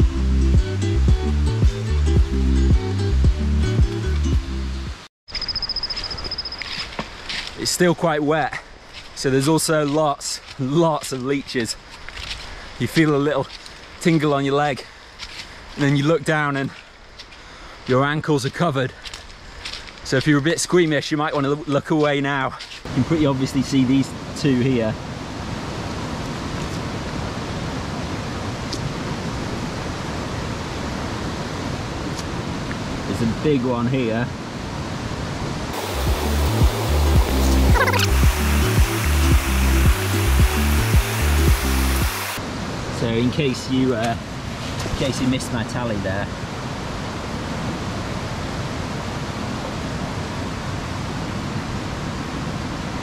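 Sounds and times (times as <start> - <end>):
stream rushing: 22.8 - 53.0
fast-running water rushing: 35.7 - 43.3.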